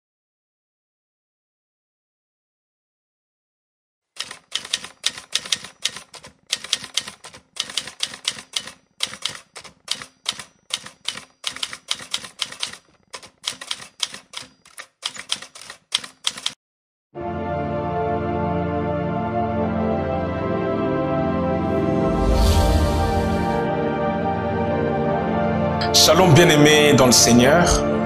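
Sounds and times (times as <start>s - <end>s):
manual typewriter typing: 4.2s - 16.6s.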